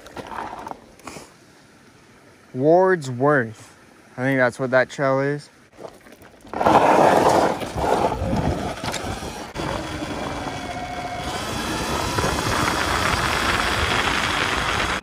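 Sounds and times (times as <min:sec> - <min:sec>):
wind and road noise: 0:05.7 - 0:15.0
electric motor whine: 0:07.5 - 0:15.0.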